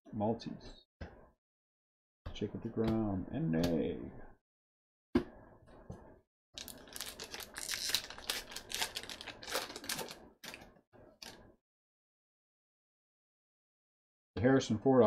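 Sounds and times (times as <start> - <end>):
wrapper tearing and crinkling: 6.6 - 10.6.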